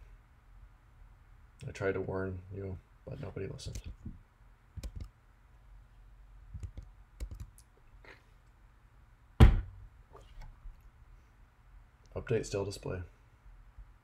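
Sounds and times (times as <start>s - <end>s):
keyboard keystrokes: 4.8s - 5.1s, 6.6s - 7.6s
heavy thump: 9.4s - 9.8s.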